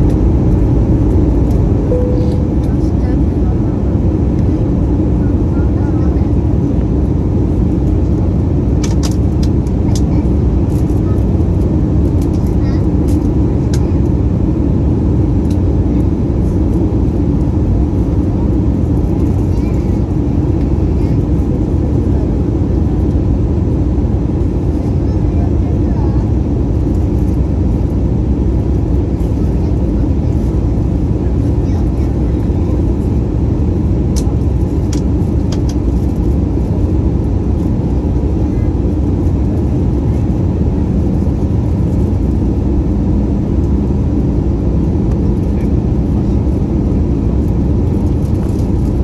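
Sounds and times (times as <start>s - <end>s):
airliner cabin roar: 0.0s - 49.0s.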